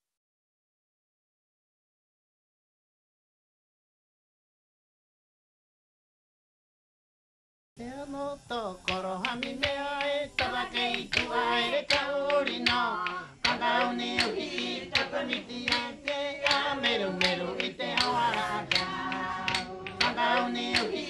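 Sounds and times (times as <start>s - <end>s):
group of people singing: 8.5s - 21.0s
sharp hand claps: 8.9s - 21.0s.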